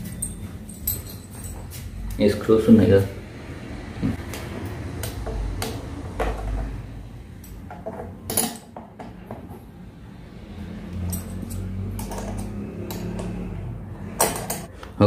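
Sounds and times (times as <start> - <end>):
metal bolts and screws clicking: 11.0 - 13.3.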